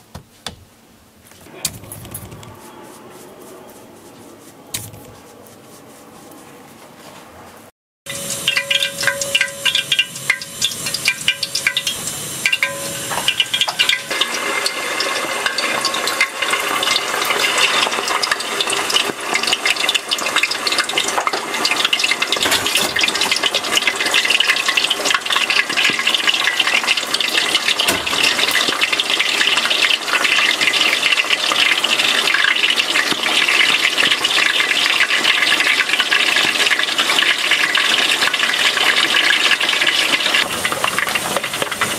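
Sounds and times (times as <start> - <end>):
food deep-frying in oil: 8.1 - 41.9.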